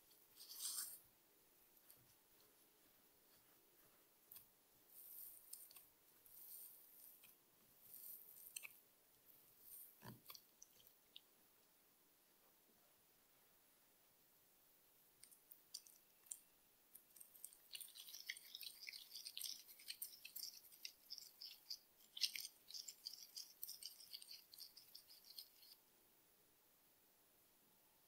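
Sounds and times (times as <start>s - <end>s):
dough crackling in gloved hands: 15.6s - 25.8s.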